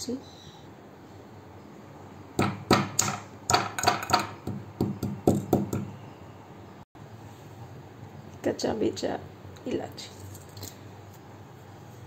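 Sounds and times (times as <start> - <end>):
pestle pounding in steel mortar: 2.4 - 5.9.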